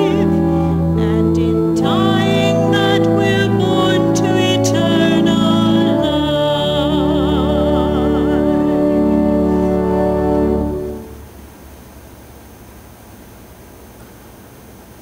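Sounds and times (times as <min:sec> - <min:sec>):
organ playing held chords: 0:00.0 - 0:11.5.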